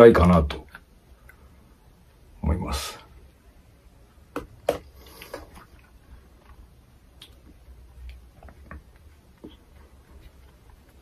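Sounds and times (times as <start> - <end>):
faint taps and ticks: 7.2 - 11.0.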